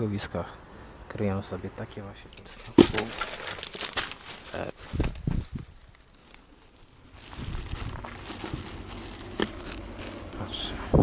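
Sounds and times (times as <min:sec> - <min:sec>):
low outdoor rumble: 0:00.0 - 0:11.0
plastic bags crinkling and rustling: 0:02.5 - 0:10.5.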